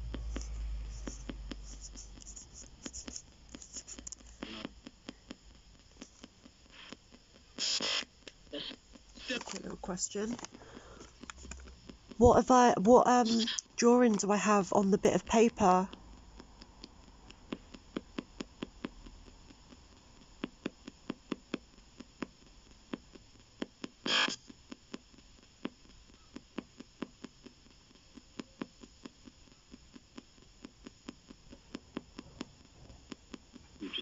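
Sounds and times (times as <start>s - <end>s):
radio static and hum: 0.0s - 16.0s, 24.1s - 24.5s, 33.6s - 34.0s
sharp radio clicks: 3.1s - 14.2s, 24.1s - 24.5s, 33.8s - 34.0s
burst of radio sound: 33.8s - 34.0s.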